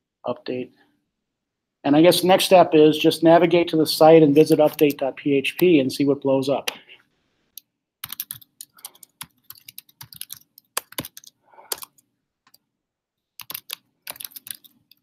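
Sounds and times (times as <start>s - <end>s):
keyboard typing: 4.4s - 5.8s, 7.6s - 12.6s, 13.4s - 15.0s.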